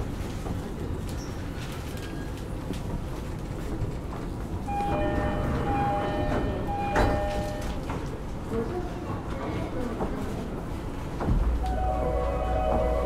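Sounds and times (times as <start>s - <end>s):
train low rumble: 0.0s - 13.0s
two-tone door chime: 4.7s - 8.0s.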